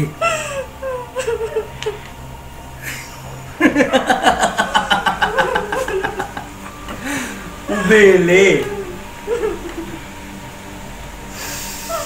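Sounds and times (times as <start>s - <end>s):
man laughing mockingly: 0.2s - 2.0s, 2.8s - 6.6s, 7.7s - 10.0s
whimpering voice: 7.6s - 9.8s.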